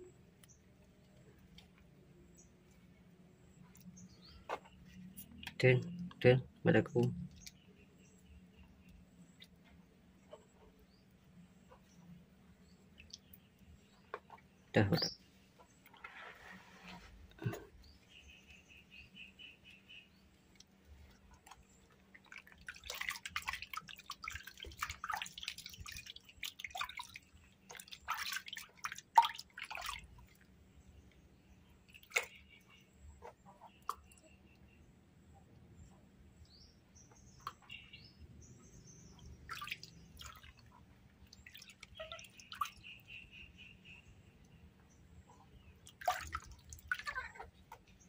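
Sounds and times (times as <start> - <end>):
water dripping: 3.6 - 10.3, 12.6 - 15.0, 20.3 - 31.2, 31.8 - 32.5, 39.1 - 43.1, 45.7 - 48.0
water splashing in plastic basin: 21.4 - 30.5, 31.8 - 32.6, 39.2 - 42.8, 45.8 - 48.0.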